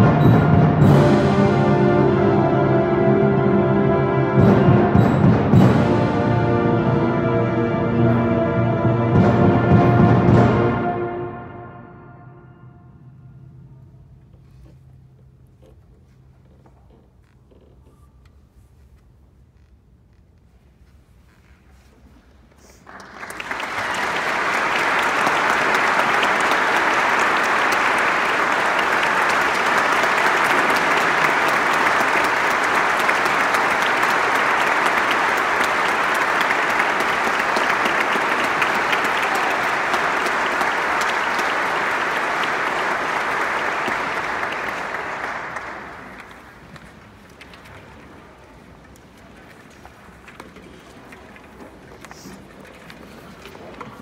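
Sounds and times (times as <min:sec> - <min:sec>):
audience applauding: 0:22.7 - 0:48.7.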